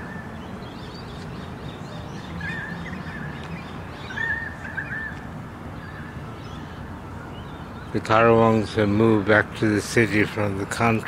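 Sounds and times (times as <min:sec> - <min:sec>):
bird warbling calls: 0:00.0 - 0:08.0.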